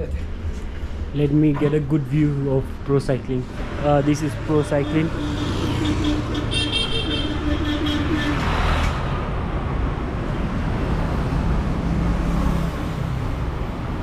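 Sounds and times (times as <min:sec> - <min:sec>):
low engine rumble of traffic: 0:00.0 - 0:14.0
vehicle passing: 0:03.4 - 0:14.0.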